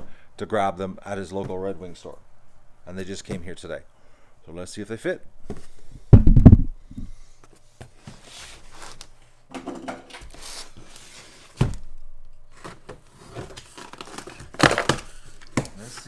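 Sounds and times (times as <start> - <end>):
box thumping on end: 6.1 - 6.8.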